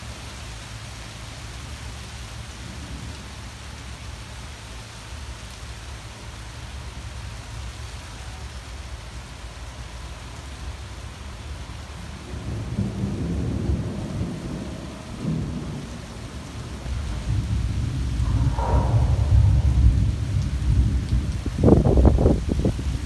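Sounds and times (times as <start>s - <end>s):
rain falling through tree canopy: 0.0s - 23.0s
thunder rumbling: 11.9s - 23.0s.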